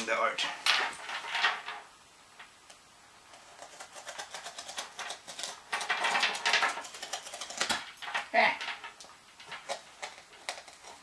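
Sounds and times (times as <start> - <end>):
packing tape being cut and scraped: 3.3 - 7.8.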